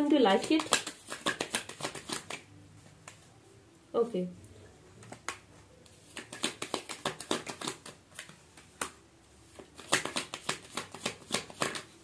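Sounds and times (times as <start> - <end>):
cards being shuffled: 0.3 - 2.4, 5.0 - 12.0.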